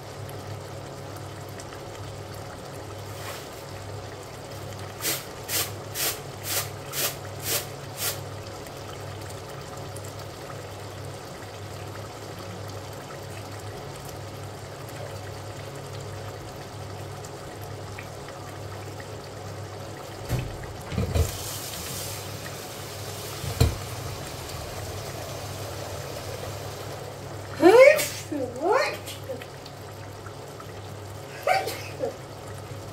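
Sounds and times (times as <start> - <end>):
curry bubbling in pot: 0.0 - 32.9
louder knocks: 23.4 - 23.9.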